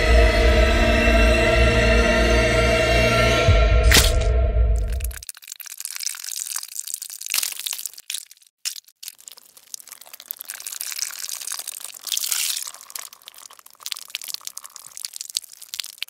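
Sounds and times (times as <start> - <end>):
ketchup squirting from squeeze bottle: 9.9 - 16.0.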